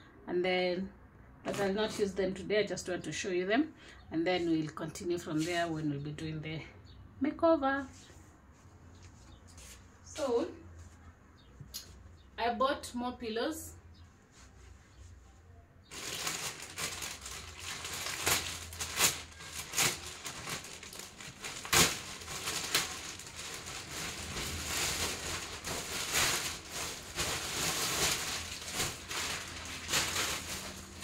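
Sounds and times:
sharp plastic cracks: 15.9 - 30.8
packaging crinkling and rustling: 15.9 - 31.0.

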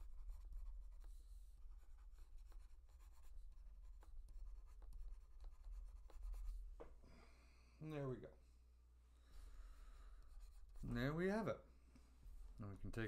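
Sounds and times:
stylus scratching on tablet: 0.0 - 6.7, 10.1 - 11.4.

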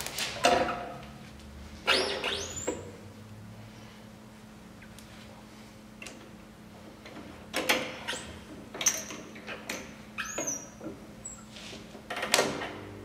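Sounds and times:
steady low hum: 0.0 - 7.6, 10.8 - 13.0
short squeaks: 1.9 - 2.9, 9.8 - 11.5.

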